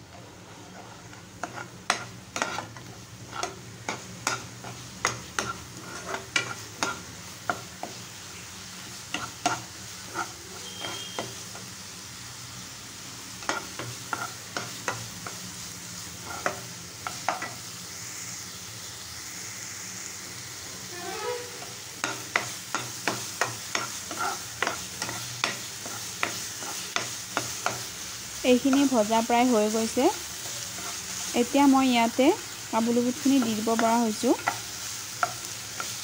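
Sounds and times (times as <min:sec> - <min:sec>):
masala sizzling in oil: 0:00.0 - 0:36.0
metal spatula scraping pan: 0:00.5 - 0:07.1, 0:09.1 - 0:11.4, 0:13.4 - 0:15.0, 0:22.0 - 0:27.8.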